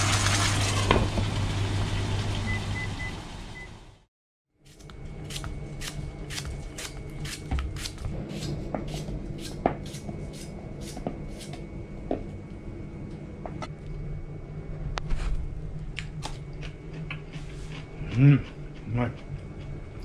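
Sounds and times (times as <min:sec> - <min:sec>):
knife slicing cucumber: 0:04.7 - 0:11.6.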